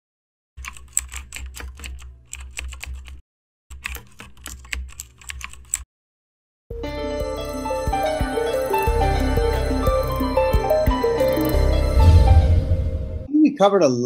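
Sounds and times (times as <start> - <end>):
rapid key clicks: 0.6 - 5.8
music: 6.7 - 13.3.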